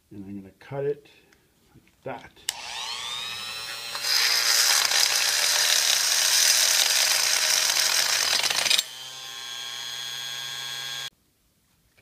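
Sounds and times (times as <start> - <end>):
multi-tool grinding buzz: 2.5 - 11.1.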